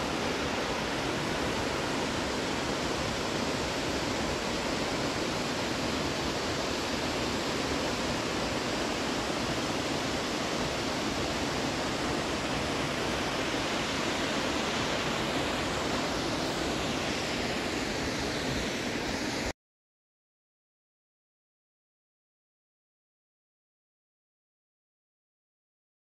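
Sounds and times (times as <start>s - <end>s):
water rushing: 0.0s - 19.5s.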